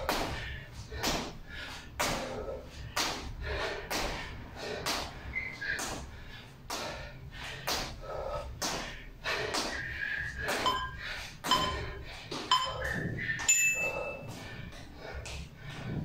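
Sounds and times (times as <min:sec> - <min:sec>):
timer countdown beeps: 0:10.6 - 0:14.3.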